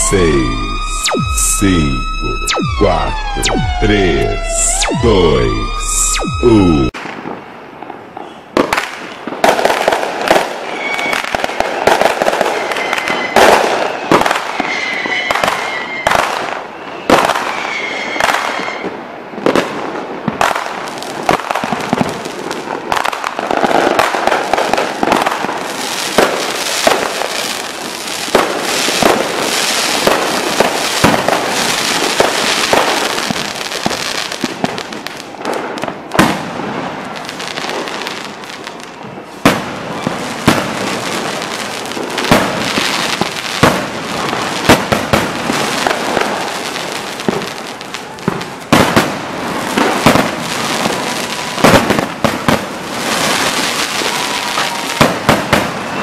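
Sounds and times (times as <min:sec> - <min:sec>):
fireworks bursting: 0:20.3 - 0:56.0.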